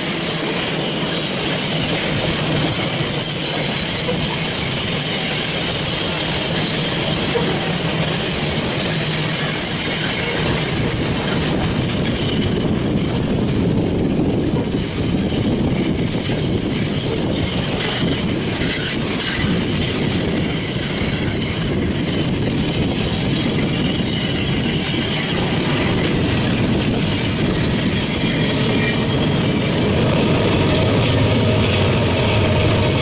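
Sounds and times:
deep locomotive drone: 0:00.0 - 0:33.0
freight train wheels rumbling on rail: 0:00.0 - 0:33.0.

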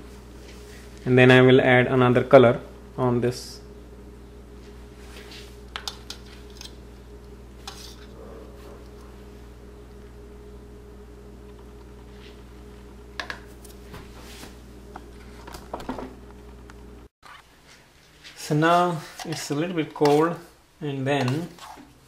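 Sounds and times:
steady low hum: 0:00.0 - 0:17.1.

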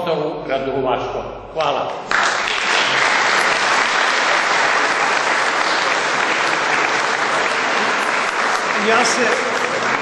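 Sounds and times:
audience applauding: 0:02.0 - 0:10.0.

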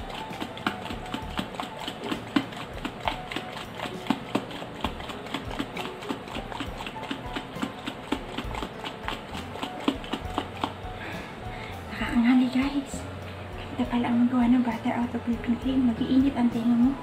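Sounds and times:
jar shaken knocking: 0:00.0 - 0:11.0.

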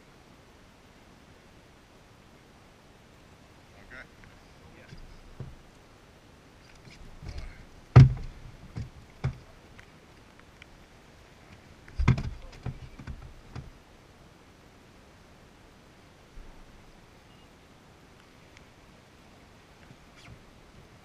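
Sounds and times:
handling knocks: 0:07.2 - 0:09.4, 0:11.9 - 0:13.7.

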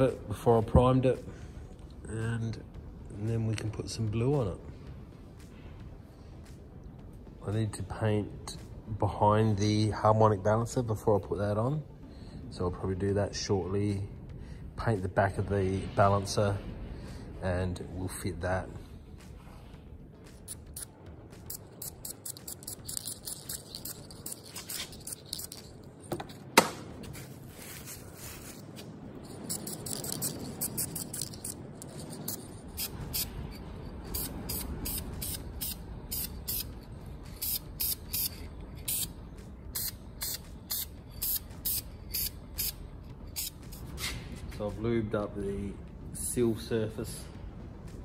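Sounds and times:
aerosol spray hissing: 0:34.1 - 0:44.2.

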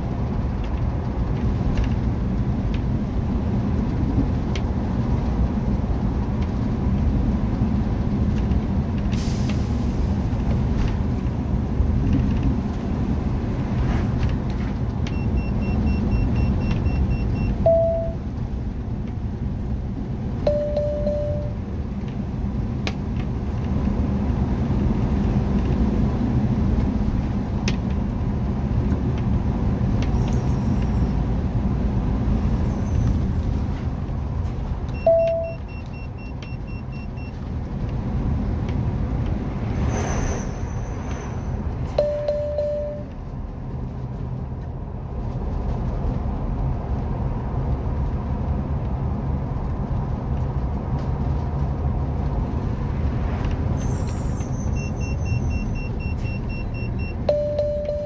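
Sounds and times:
engine hum and tyre rumble: 0:00.0 - 0:58.0
short electronic beeps: 0:15.1 - 0:18.2, 0:20.5 - 0:21.6, 0:34.9 - 0:37.4, 0:42.0 - 0:43.1, 0:53.8 - 0:58.0.

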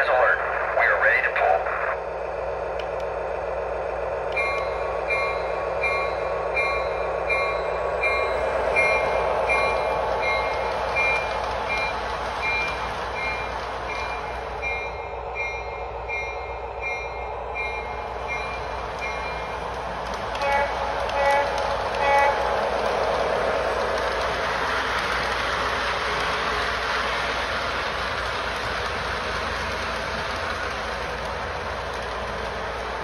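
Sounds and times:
model train running on track: 0:00.0 - 0:33.0
toy train bell ringing: 0:04.3 - 0:19.7.

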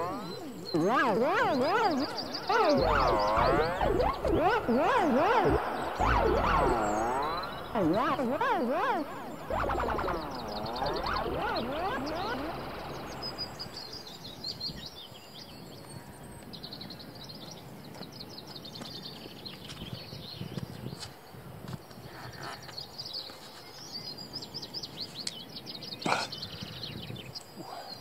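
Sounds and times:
swooping wavering tone: 0:00.0 - 0:14.2
small birds chirping: 0:00.0 - 0:28.0
steady outdoor noise: 0:00.0 - 0:28.0.

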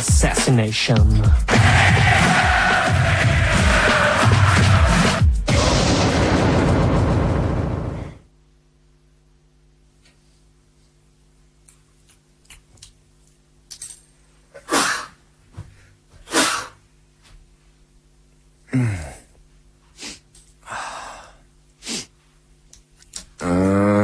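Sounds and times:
faint steady hum: 0:07.4 - 0:24.0
person making breathy bursts: 0:14.6 - 0:15.2, 0:16.2 - 0:16.8, 0:20.0 - 0:22.2.

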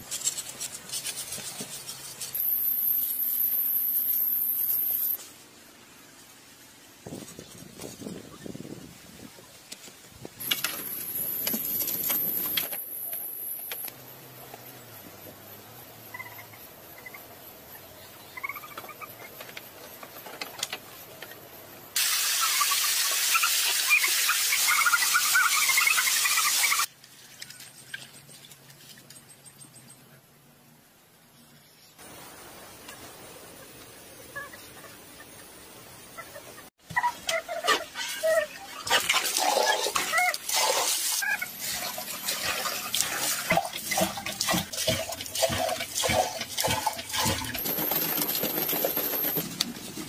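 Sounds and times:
very high-pitched hiss: 0:02.2 - 0:06.8.

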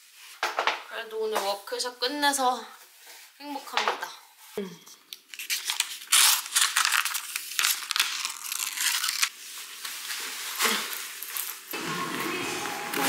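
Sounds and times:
paper page tearing: 0:05.3 - 0:09.4
paper rustling: 0:05.3 - 0:11.7.

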